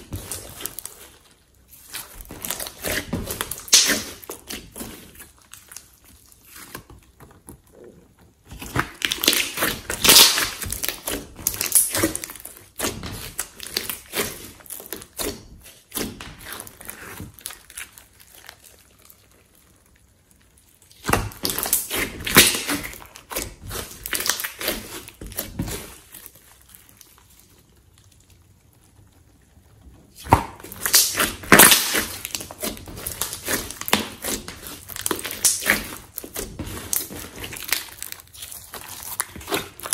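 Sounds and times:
slime crackling and popping: 0.0 - 39.9.

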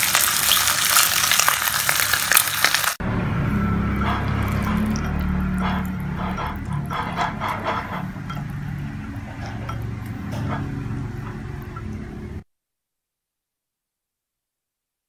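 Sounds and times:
whisk clinking against ceramic bowl: 4.1 - 12.2.

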